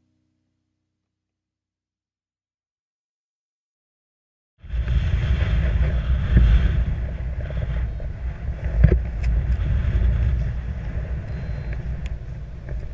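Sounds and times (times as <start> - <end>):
wind buffeting microphone: 4.6 - 12.9.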